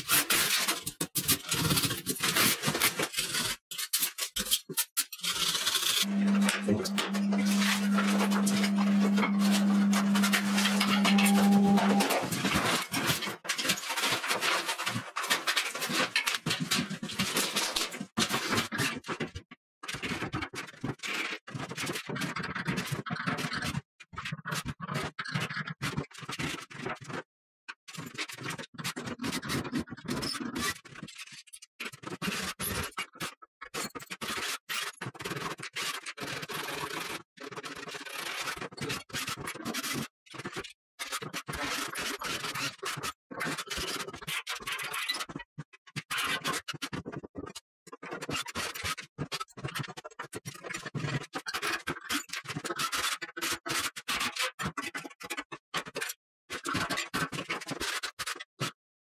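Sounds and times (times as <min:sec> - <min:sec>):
scraping and scratching demolition: 0:00.0 - 0:19.2.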